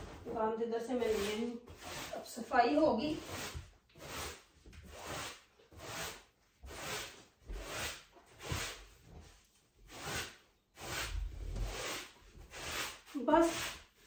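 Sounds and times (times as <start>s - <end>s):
broom sweeping a rug: 0.0s - 14.0s.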